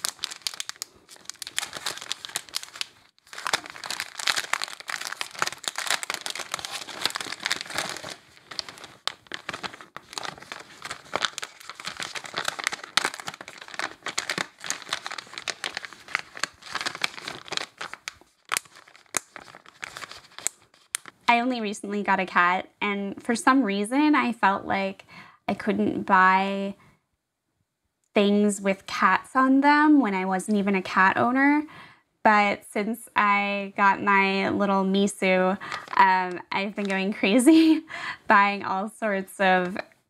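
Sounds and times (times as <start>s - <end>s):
plastic bags crinkling: 0.0s - 21.3s, 35.6s - 37.1s.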